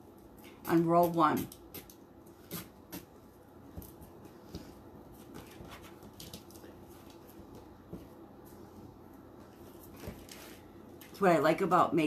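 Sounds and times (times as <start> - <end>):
faint clicks and rustles: 3.3 - 11.2.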